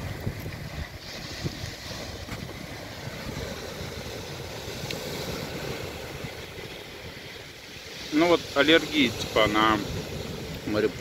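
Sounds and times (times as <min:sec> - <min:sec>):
sea surf: 0:00.0 - 0:11.0
wind blowing on microphone: 0:00.0 - 0:11.0.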